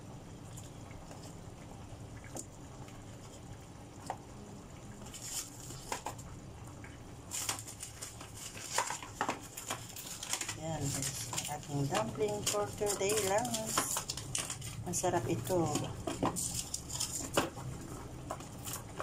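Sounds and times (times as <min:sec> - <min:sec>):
water boiling in a pot: 0:00.0 - 0:19.0
pops and crackles: 0:05.0 - 0:19.0.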